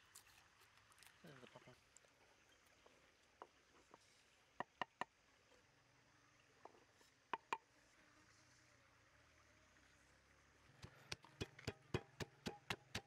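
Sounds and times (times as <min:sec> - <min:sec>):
wooden ladle tapping wooden mortar: 0:10.8 - 0:13.0.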